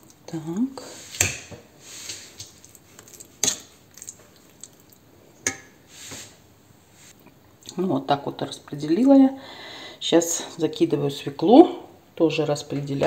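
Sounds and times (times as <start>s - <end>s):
spoon scraping and smearing: 0.8s - 4.9s.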